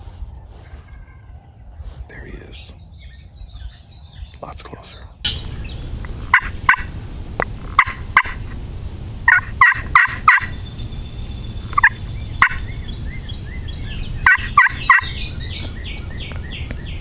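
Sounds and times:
turkey gobbling: 0:05.3 - 0:08.6, 0:09.2 - 0:16.1.

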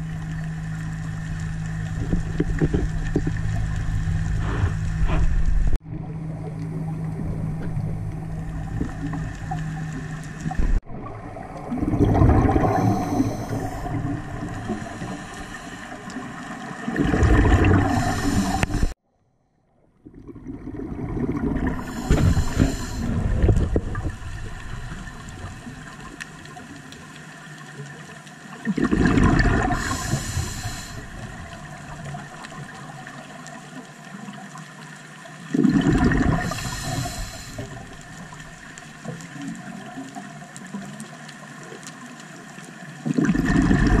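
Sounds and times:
regulator bubbles underwater: 0:00.0 - 0:19.0, 0:19.9 - 0:44.0
low steady hum: 0:00.0 - 0:27.0
diver breathing: 0:04.3 - 0:05.3, 0:12.4 - 0:16.3, 0:17.8 - 0:19.0, 0:21.7 - 0:23.2, 0:29.6 - 0:31.2, 0:36.4 - 0:37.9.

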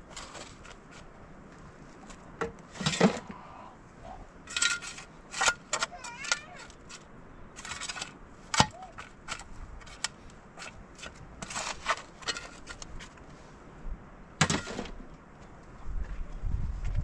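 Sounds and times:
shovel scraping stony soil: 0:00.0 - 0:01.1, 0:04.5 - 0:13.4, 0:14.4 - 0:15.0.

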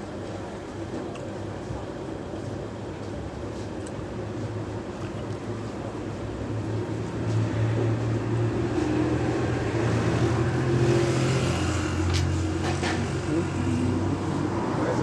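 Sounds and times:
engine humming: 0:04.3 - 0:15.0.

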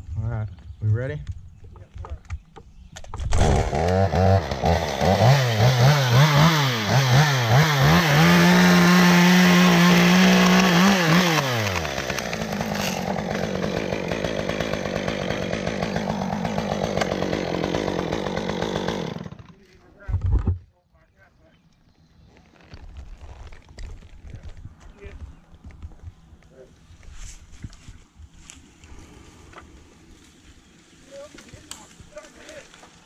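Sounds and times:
chainsaw revving and idling: 0:03.4 - 0:19.8.

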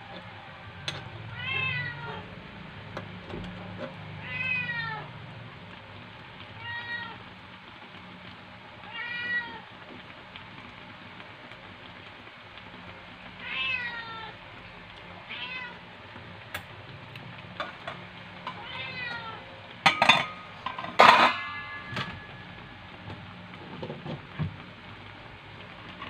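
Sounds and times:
cat meowing: 0:01.0 - 0:02.3, 0:04.2 - 0:05.1, 0:06.6 - 0:07.2, 0:08.8 - 0:09.7, 0:13.4 - 0:14.4, 0:15.2 - 0:15.8, 0:18.5 - 0:19.5, 0:21.4 - 0:22.5.

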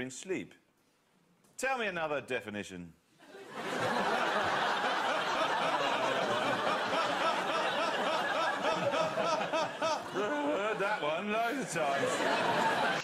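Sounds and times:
studio audience laughing: 0:03.2 - 0:13.0.

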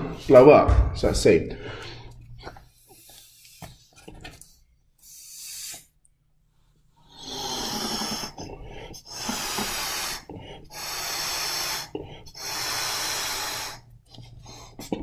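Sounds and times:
person blowing through straw: 0:05.0 - 0:05.9, 0:07.2 - 0:13.8.

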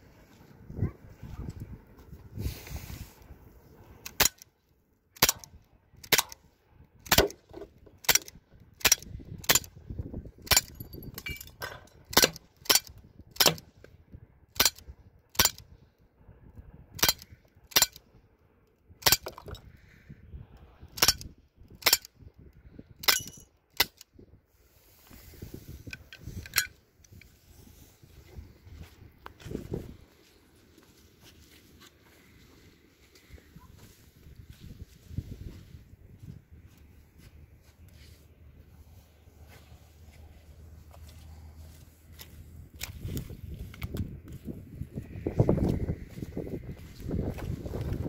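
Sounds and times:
bb pistol firing sharp cracks: 0:04.0 - 0:04.5, 0:05.2 - 0:09.7, 0:12.1 - 0:13.7, 0:14.6 - 0:15.6, 0:17.0 - 0:18.0, 0:21.8 - 0:22.1.

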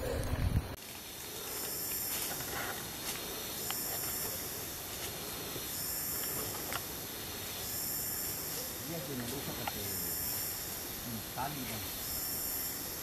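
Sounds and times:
insects buzzing: 0:00.0 - 0:13.0
footfalls on leaf litter: 0:00.8 - 0:07.0.

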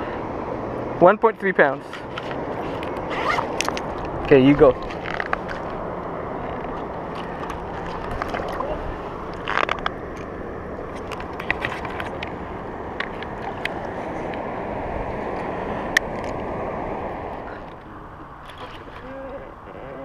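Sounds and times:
water sloshing against rocks: 0:06.7 - 0:09.8.

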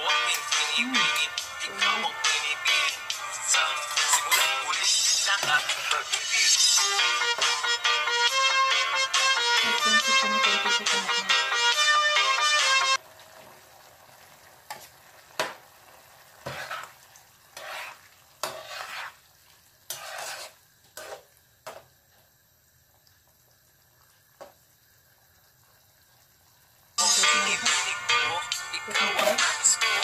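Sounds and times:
pan sizzling: 0:00.0 - 0:30.0
metal spatula scraping pan: 0:03.7 - 0:06.1, 0:16.4 - 0:19.2, 0:19.9 - 0:21.2.

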